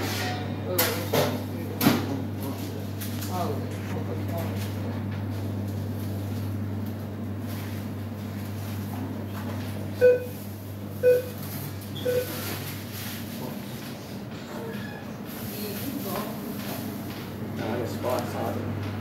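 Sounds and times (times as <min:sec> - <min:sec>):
low equipment hum: 0:00.0 - 0:19.0
short electronic beeps: 0:10.0 - 0:10.4, 0:11.0 - 0:11.4, 0:12.0 - 0:12.4.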